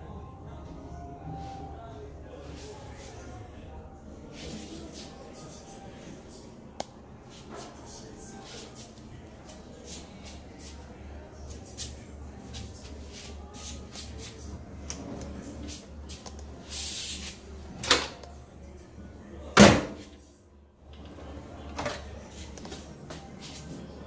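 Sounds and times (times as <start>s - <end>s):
cabinet doors opening and shutting: 17.7s - 18.2s, 19.5s - 20.1s, 21.0s - 22.2s.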